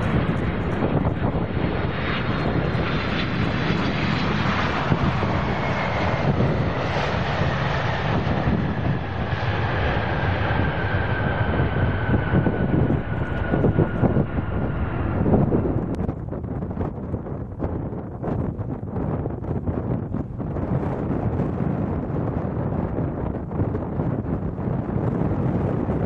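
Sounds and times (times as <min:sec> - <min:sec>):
falling whine: 0:00.0 - 0:16.2
jet engines rumbling: 0:00.0 - 0:26.0.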